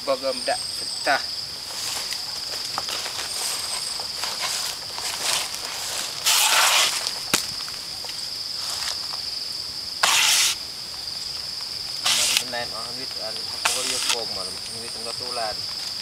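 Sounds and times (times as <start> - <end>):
high insect drone: 0.0 - 16.0
blade scraping plant fibre: 3.7 - 7.2, 10.0 - 10.6, 12.0 - 12.6, 13.6 - 14.4.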